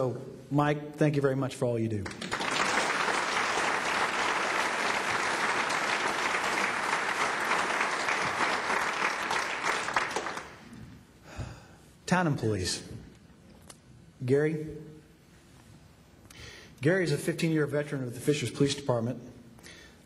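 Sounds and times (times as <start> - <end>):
audience applauding: 2.0 - 10.8.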